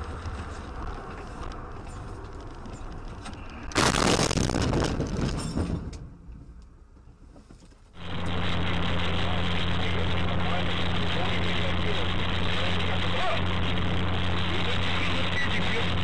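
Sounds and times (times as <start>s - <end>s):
car road and engine noise: 0.0s - 16.0s
car crash: 3.6s - 6.3s.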